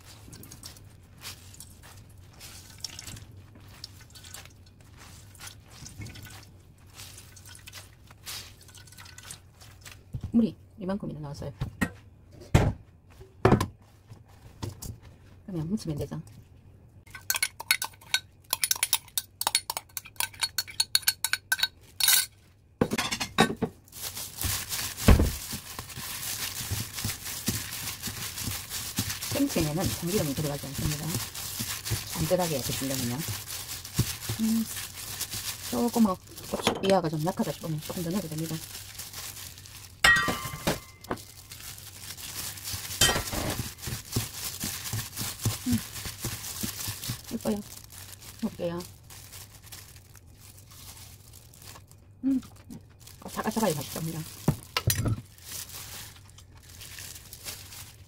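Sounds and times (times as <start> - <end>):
wet slices rustling and squelching: 0.0 - 10.2, 23.8 - 58.0
plastic glove crinkling: 0.0 - 10.4, 23.8 - 58.0
thump: 12.5 - 12.8, 25.0 - 25.4
metal clinking against steel bowl: 17.1 - 22.3, 40.0 - 41.1.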